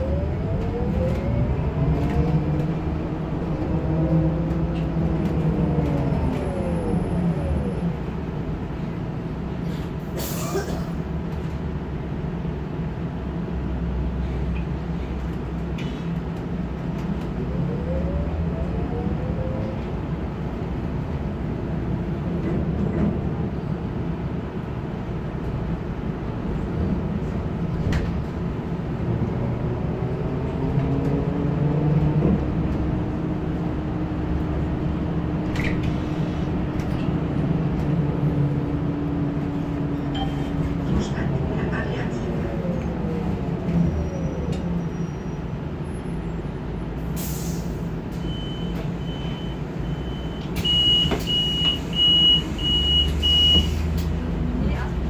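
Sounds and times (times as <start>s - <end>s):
rumble of running gear and road: 0.1s - 10.2s, 10.9s - 17.8s.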